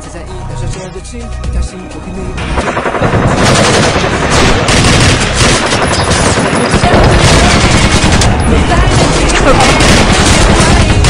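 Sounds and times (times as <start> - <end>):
rapid automatic gunfire: 2.5 - 11.0.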